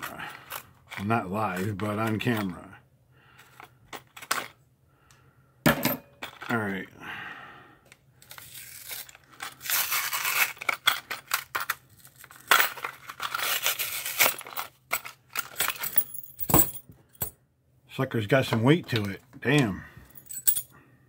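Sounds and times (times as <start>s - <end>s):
packaging tearing and crinkling: 8.2s - 11.1s, 11.8s - 14.5s.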